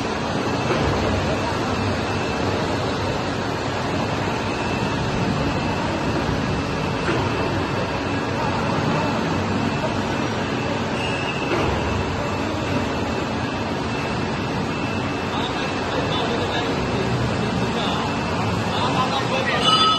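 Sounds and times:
hydraulic machine running: 0:00.0 - 0:19.9.

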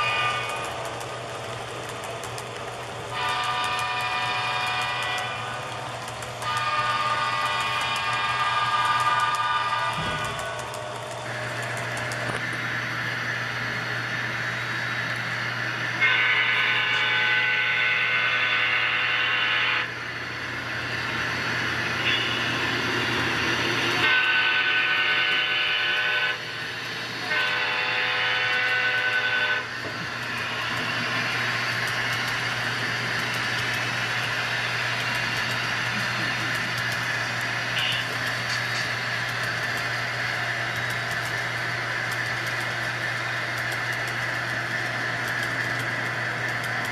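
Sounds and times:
multi-tone locomotive horn: 0:00.0 - 0:00.8, 0:03.1 - 0:11.2, 0:15.9 - 0:20.0, 0:22.0 - 0:22.7, 0:24.0 - 0:26.6, 0:27.2 - 0:29.8, 0:36.8 - 0:38.9.

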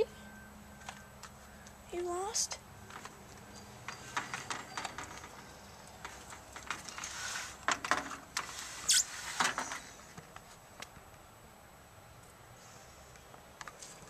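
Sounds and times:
soft rustle: 0:05.1 - 0:07.6, 0:08.4 - 0:10.8.

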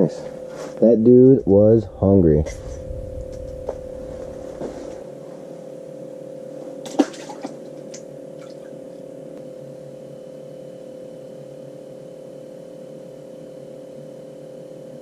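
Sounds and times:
steady hum: 0:00.0 - 0:11.7.

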